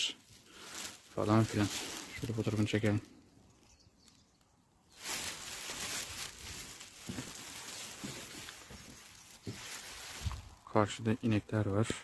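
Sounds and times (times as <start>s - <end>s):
rustling hiss: 4.9s - 10.7s
footsteps on gravel path: 5.0s - 10.6s.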